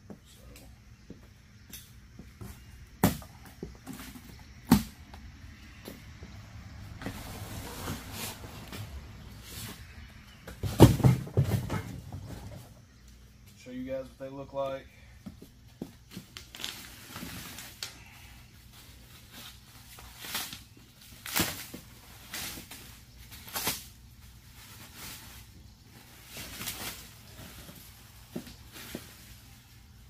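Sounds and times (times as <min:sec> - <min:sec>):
packaging rustling and scraping: 0:16.0 - 0:17.9, 0:18.6 - 0:30.0.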